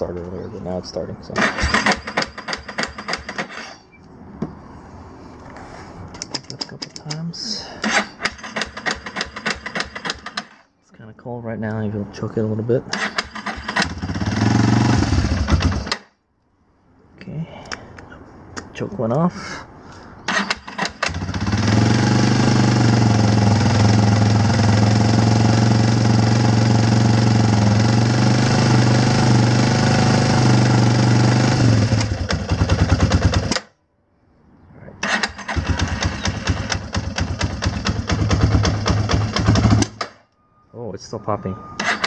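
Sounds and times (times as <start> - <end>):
motorcycle engine running: 13.7 - 15.9, 21.1 - 33.5, 35.5 - 40.0
engine popping: 35.0 - 40.2.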